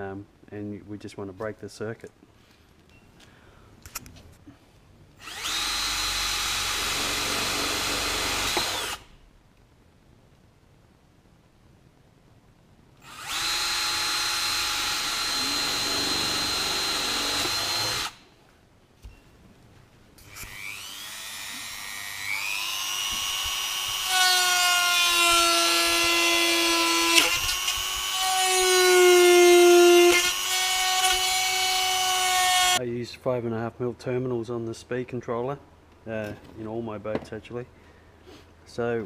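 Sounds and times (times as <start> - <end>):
cordless drill boring: 5.2 - 9.1, 13.0 - 18.2, 20.2 - 32.8
rotary tool whining: 5.2 - 9.1, 13.0 - 18.3, 20.2 - 32.8.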